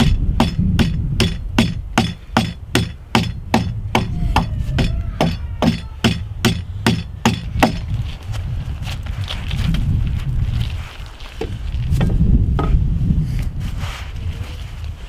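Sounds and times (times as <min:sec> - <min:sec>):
hatchet chopping log: 0:00.0 - 0:04.1, 0:04.8 - 0:07.9.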